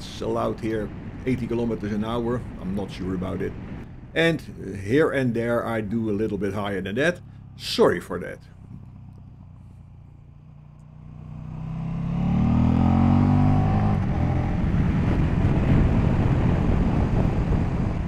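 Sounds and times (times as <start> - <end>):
motorcycle engine accelerating: 6.4 - 18.0.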